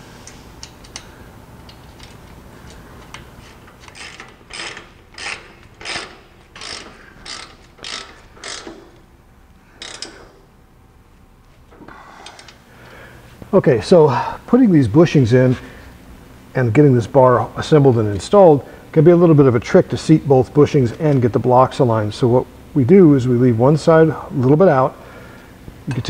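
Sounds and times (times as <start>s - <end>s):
socket ratchet clicking: 3.8s - 9.0s, 9.8s - 10.3s.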